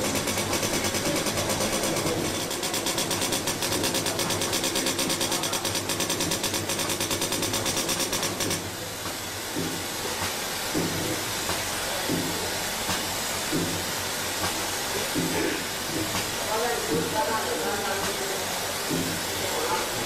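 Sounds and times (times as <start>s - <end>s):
glue valve ticking rapidly: 0.0s - 8.7s.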